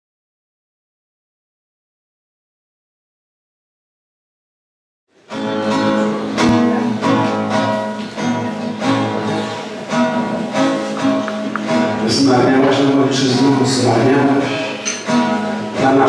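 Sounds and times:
acoustic guitar picking: 5.2s - 16.0s.

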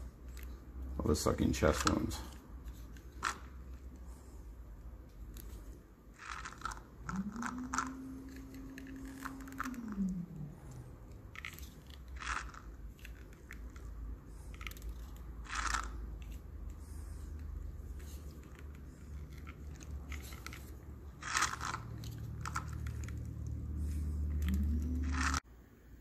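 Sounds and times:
low drawn-out tone: 7.0s - 11.2s, 22.6s - 25.4s.

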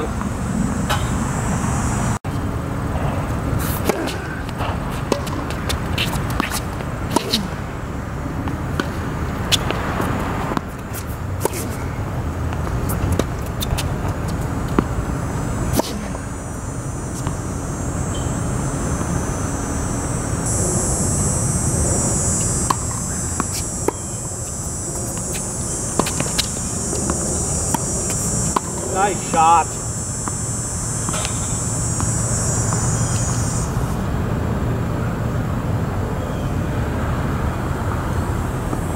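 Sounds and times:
high steady buzz: 0.0s - 35.4s
steady low rumble: 0.0s - 35.6s
tennis ball struck by rackets: 3.6s - 7.6s, 10.5s - 16.3s, 22.5s - 29.4s, 31.0s - 32.9s
ball bouncing on hard court: 22.6s - 29.4s.

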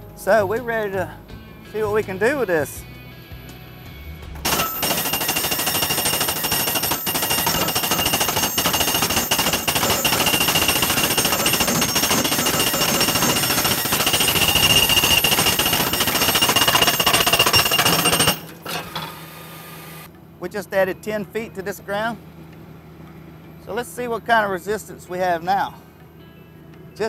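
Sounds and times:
ground rod driver hammering: 4.5s - 18.8s
high metallic ring: 4.5s - 19.3s.

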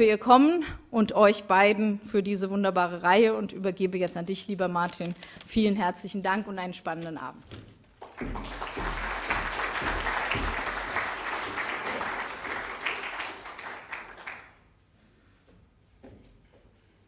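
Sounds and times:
audience applauding: 8.0s - 14.7s.

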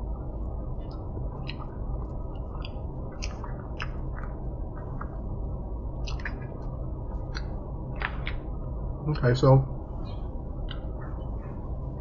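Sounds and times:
steady low hum: 0.0s - 12.0s
person chewing with wet clicks: 0.8s - 8.5s, 10.6s - 11.3s.

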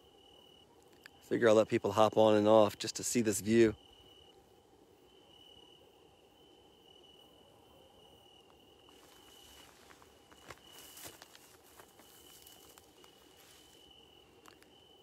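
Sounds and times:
crickets trilling: 0.0s - 15.0s
light rustle: 8.9s - 14.8s.

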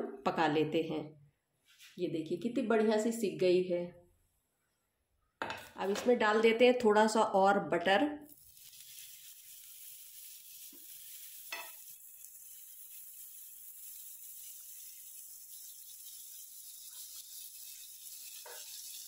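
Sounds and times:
butter sizzling on griddle: 8.3s - 19.0s.

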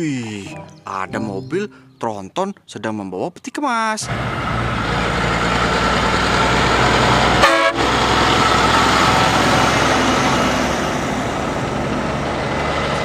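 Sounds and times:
trucks driving past: 4.0s - 13.0s
truck horn blast: 7.3s - 8.0s.

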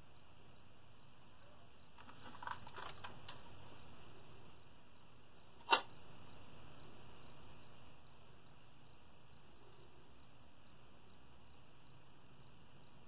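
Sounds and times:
faint room hum: 0.0s - 13.0s
sharp click: 5.6s - 5.9s.

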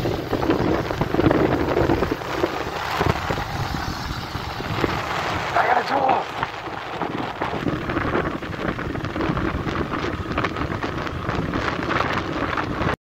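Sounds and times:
motorcycle engine running: 0.0s - 13.0s
wind buffeting microphone: 0.0s - 13.0s.

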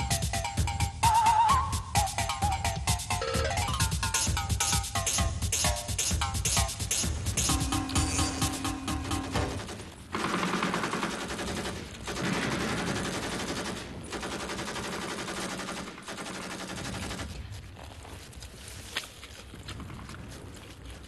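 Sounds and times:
dense rapid rattling: 3.0s - 17.4s.

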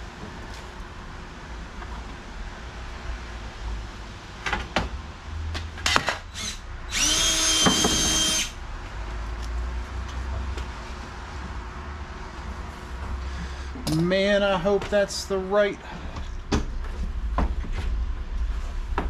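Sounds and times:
power drill running: 6.3s - 8.6s.

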